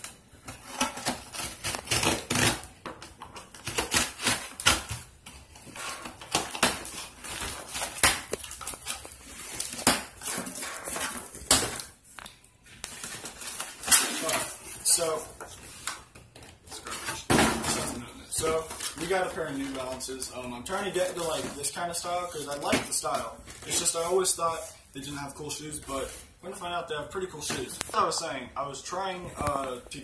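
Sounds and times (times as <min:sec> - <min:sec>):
knife slicing packing tape: 0:00.6 - 0:02.7, 0:03.5 - 0:05.0.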